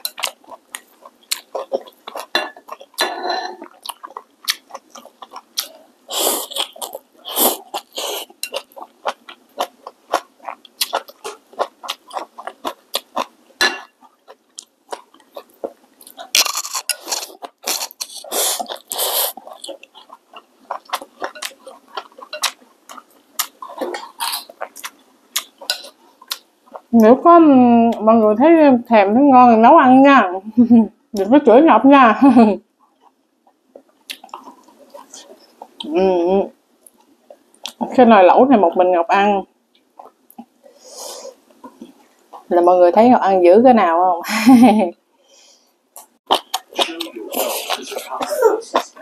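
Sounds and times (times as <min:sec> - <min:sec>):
wet chewing and lip smacks: 0:32.8 - 0:35.9.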